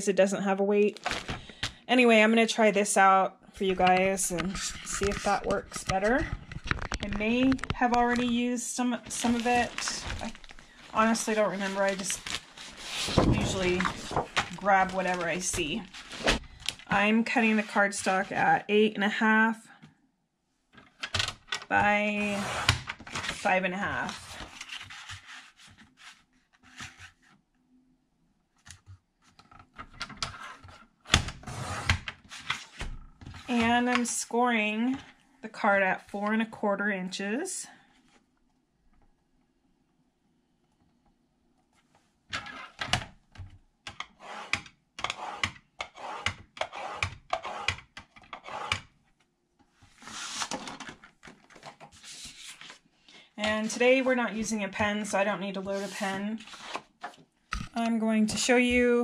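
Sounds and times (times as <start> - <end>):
cardstock rustling and sliding: 9.1 - 16.6, 49.9 - 52.8, 55.7 - 57.2
paper trimmer blade sliding: 44.2 - 47.8, 48.4 - 48.8.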